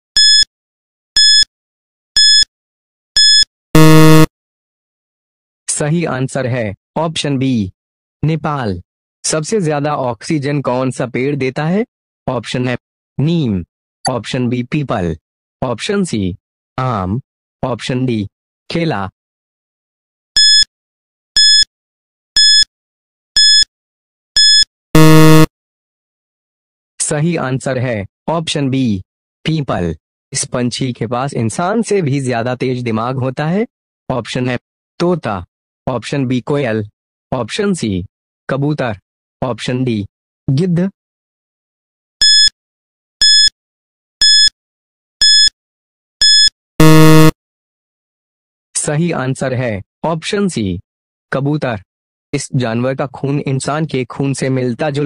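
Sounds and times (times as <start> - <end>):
short high-pitched beeps: 0.2 - 0.5, 1.2 - 1.5, 2.2 - 2.5, 3.2 - 4.3, 20.4 - 20.7, 21.4 - 21.7, 22.4 - 22.7, 23.4 - 23.7, 24.4 - 25.5, 42.2 - 42.5, 43.2 - 43.5, 44.2 - 44.5, 45.2 - 45.5, 46.2 - 47.3
low buzzer: 2.2 - 2.4, 3.2 - 4.3, 21.4 - 21.6, 23.4 - 23.6, 24.4 - 25.5, 43.2 - 43.5, 44.2 - 44.5, 46.2 - 47.4.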